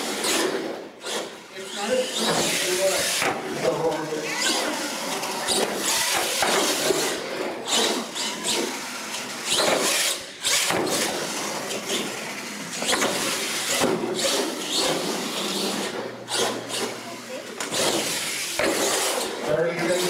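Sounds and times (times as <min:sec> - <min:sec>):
toy truck motor surging: 0:00.0 - 0:20.0.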